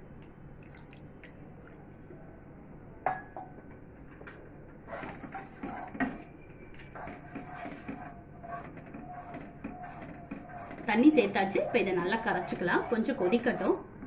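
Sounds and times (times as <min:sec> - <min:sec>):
spatula scraping pan: 0:04.9 - 0:06.2, 0:07.0 - 0:13.8.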